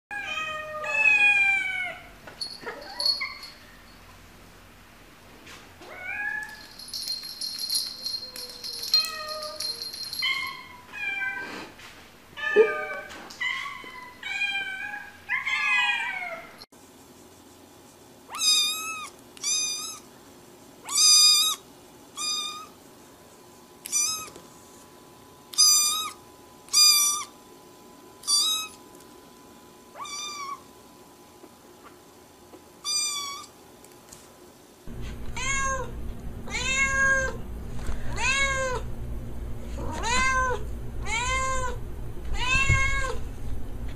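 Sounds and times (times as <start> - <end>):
cats meowing: 0.1 - 2.1, 12.4 - 16.6, 30.0 - 30.6, 35.1 - 37.4, 38.1 - 38.8, 39.8 - 43.2.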